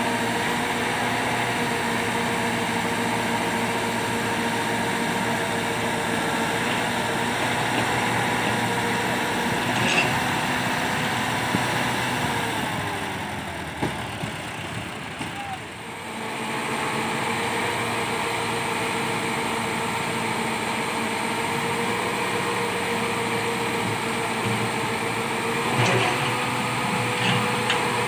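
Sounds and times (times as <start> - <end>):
diesel tractor engine running: 0.0 - 28.0
backhoe digging soil: 0.3 - 15.4, 22.2 - 28.0.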